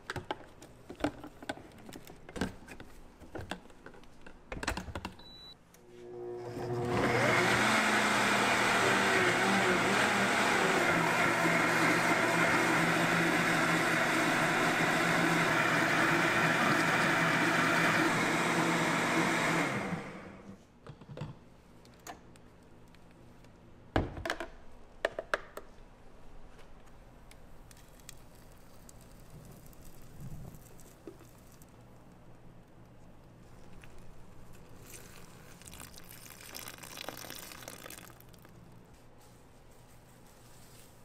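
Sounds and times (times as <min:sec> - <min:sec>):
blender running: 0:06.0 - 0:20.5.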